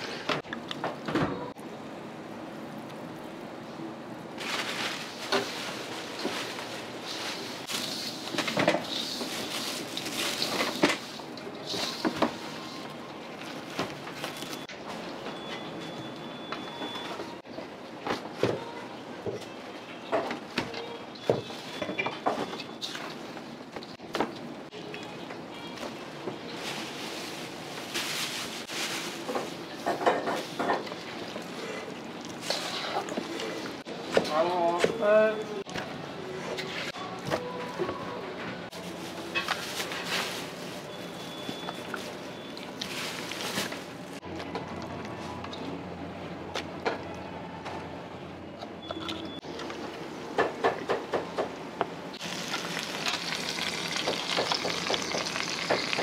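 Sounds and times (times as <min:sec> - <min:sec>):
steady kitchen noise: 0:00.0 - 0:56.0
hands mixing meat in seasoning: 0:52.2 - 0:56.0.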